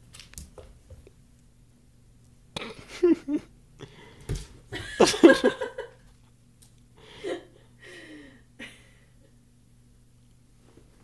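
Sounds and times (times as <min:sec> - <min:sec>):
faint room hum: 0:00.0 - 0:11.0
person laughing: 0:02.6 - 0:03.5, 0:04.7 - 0:06.0.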